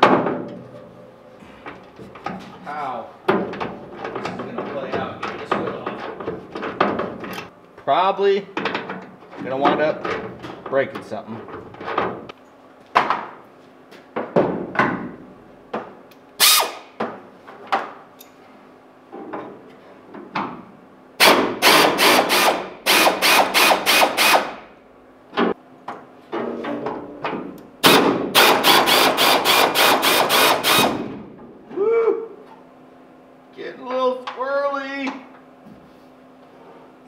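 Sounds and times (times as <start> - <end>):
pneumatic tool bursts: 16.4 - 16.9, 21.2 - 24.7, 27.8 - 31.1.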